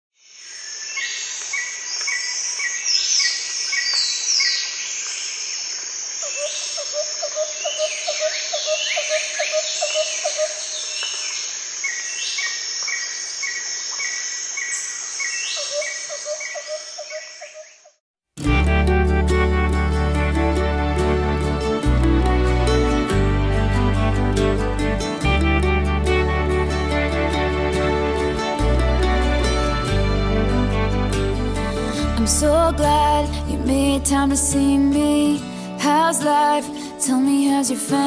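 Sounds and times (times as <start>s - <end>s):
insect chorus: 0.2s - 18.0s
birds chirping and whistling: 6.2s - 17.9s.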